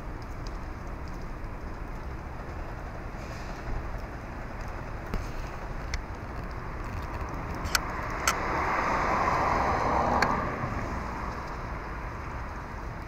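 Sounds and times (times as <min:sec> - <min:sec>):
car passing by: 0:07.5 - 0:12.6.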